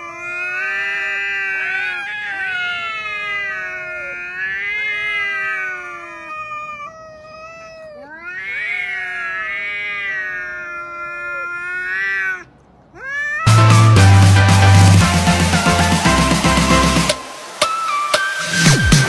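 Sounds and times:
cats yowling: 0:00.0 - 0:13.5.

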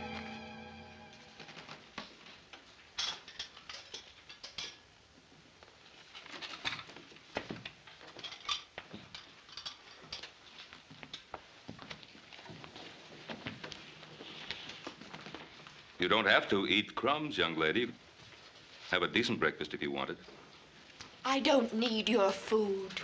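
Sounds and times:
dishes and cutlery clinking: 0:03.0 - 0:04.9, 0:08.1 - 0:10.4.

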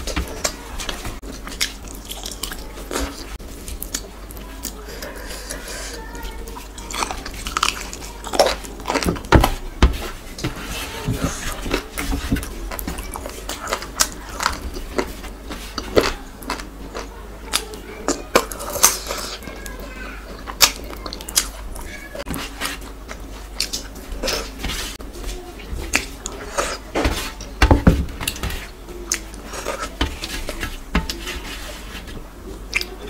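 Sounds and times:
fingers squishing rice on steel tray: 0:25.6 - 0:33.0.

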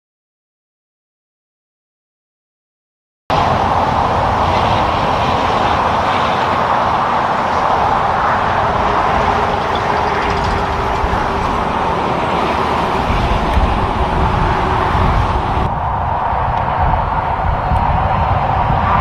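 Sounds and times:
highway traffic passing: 0:03.3 - 0:19.0.

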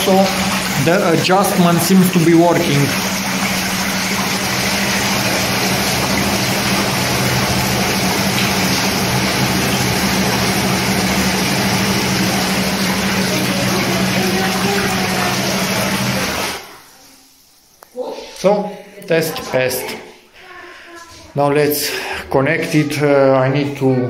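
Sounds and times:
water jets bubbling: 0:00.0 - 0:17.7
bathtub pump humming: 0:00.0 - 0:24.0.

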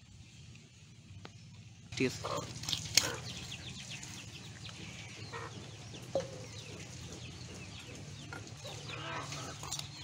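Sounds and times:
chickens clucking: 0:02.0 - 0:10.0.

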